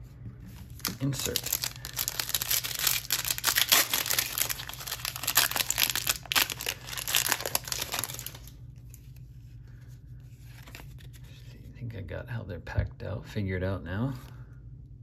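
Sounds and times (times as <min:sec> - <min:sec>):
foil wrapper crinkling: 0:00.7 - 0:08.5.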